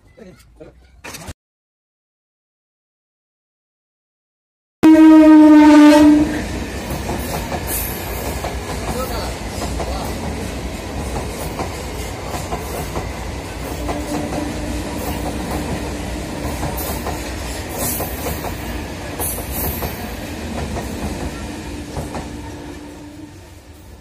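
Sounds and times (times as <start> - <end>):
electric train passing: 4.9 - 24.0.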